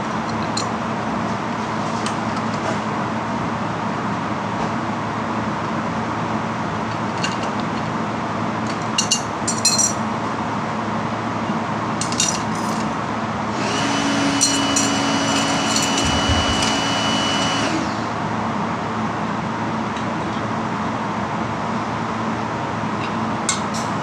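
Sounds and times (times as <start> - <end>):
metal tool parts clinking: 8.9 - 10.0, 12.0 - 12.9
high whine: 14.4 - 18.2
background hum: 14.4 - 18.3.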